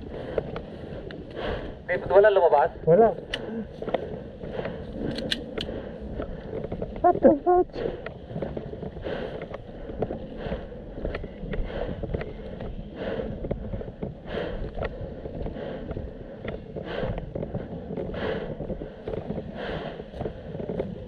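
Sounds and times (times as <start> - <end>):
person breathing hard: 0.0 - 1.9, 3.2 - 7.0, 7.7 - 21.0
wind rumble on microphone: 0.0 - 21.0.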